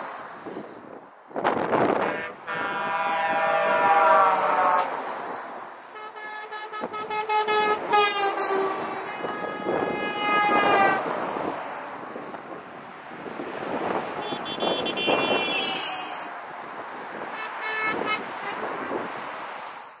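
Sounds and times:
vehicle engine and tyre noise: 0.0s - 20.0s
long horn blasts falling in pitch: 2.0s - 5.0s, 6.0s - 11.0s
quick horn toots: 14.2s - 16.3s.

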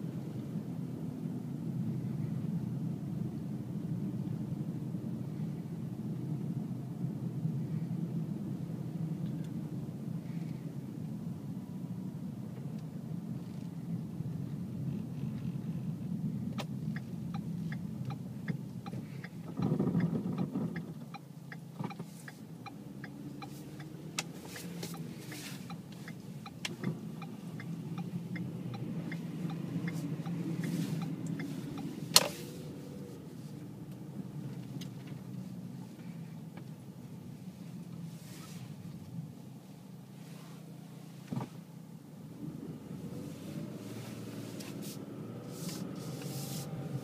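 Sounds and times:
car engine and tyres humming: 0.0s - 47.0s
turn signal ticking: 14.4s - 35.4s.

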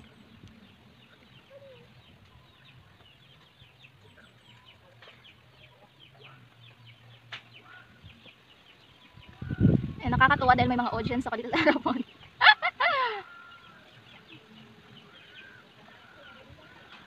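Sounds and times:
chickens clucking: 0.0s - 10.0s.

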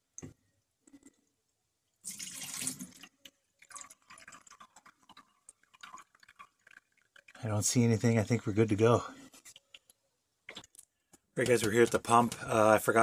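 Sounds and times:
water trickling down drain pipe: 1.9s - 11.9s
water splashing into sink: 2.0s - 7.5s.

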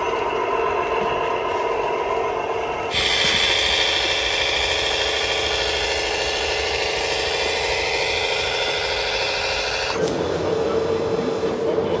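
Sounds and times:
high whine: 0.0s - 12.0s
model tractor engine drone: 0.0s - 12.0s.

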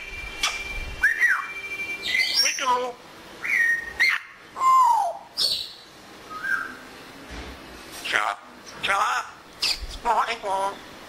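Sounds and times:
parrot whistling: 0.4s - 2.7s, 3.4s - 6.8s.

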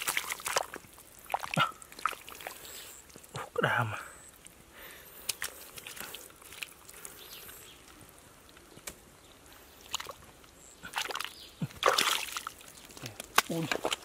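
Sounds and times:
hands squelching in wet mud: 0.0s - 3.4s, 4.4s - 8.0s, 9.7s - 10.2s, 10.8s - 14.0s
mud splats: 0.0s - 3.5s, 5.2s - 8.0s, 9.8s - 14.0s.

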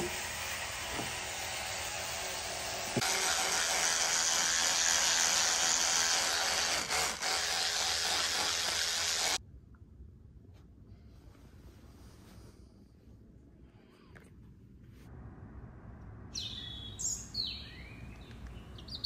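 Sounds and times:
electric toothbrush buzzing: 0.0s - 9.4s.

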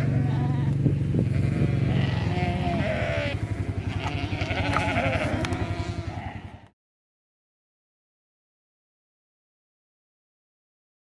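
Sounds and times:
low rumble: 0.0s - 6.7s
sheep bleating: 0.0s - 6.7s.

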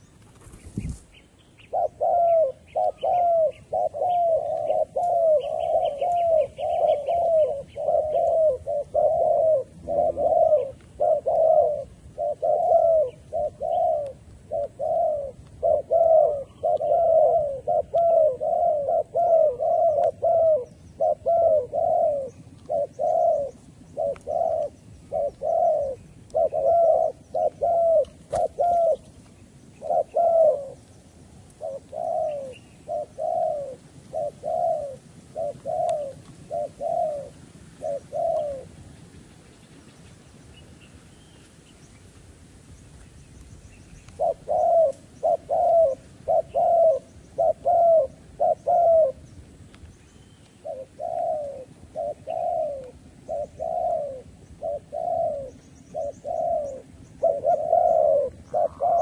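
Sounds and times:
small bird chirping: 0.0s - 11.2s
doves cooing: 0.0s - 41.6s, 44.0s - 49.7s, 50.4s - 59.0s.

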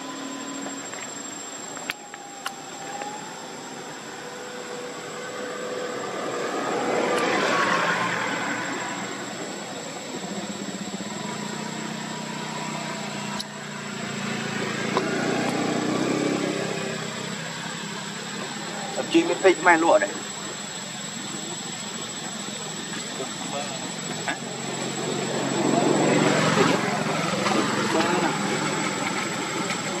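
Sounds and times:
low engine drone: 0.0s - 30.0s
rushing vehicle noise: 0.0s - 30.0s.

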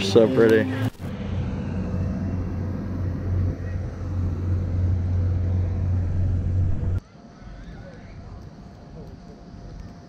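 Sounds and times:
faint steady hum: 0.0s - 10.0s
steady low rumble: 0.9s - 7.0s.

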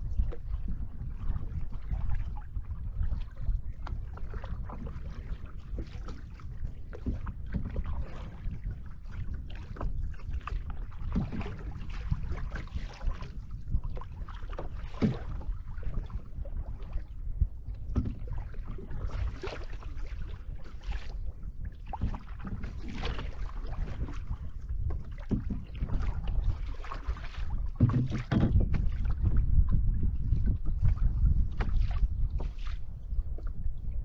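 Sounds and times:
steady low rumble: 0.0s - 5.0s, 10.1s - 19.5s
water splashing against canoe hull: 0.0s - 33.9s.

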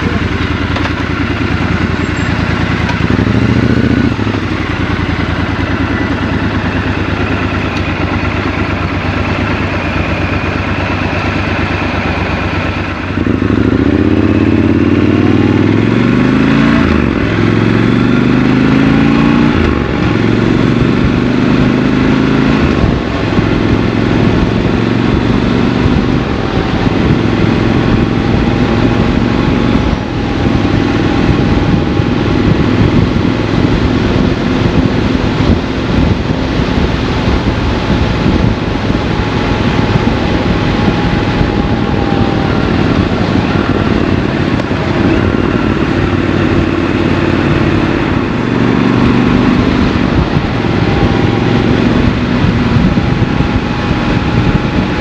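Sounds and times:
motorcycle engine idling: 0.0s - 16.0s, 25.9s - 48.6s
motorcycle accelerating through gears: 0.0s - 55.0s.

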